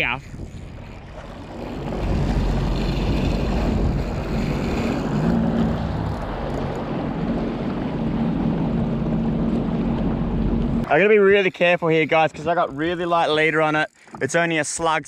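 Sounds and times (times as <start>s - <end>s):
wind on microphone: 0.0s - 10.9s
jet ski engine humming: 0.0s - 14.3s
water rushing past hull: 0.0s - 15.0s.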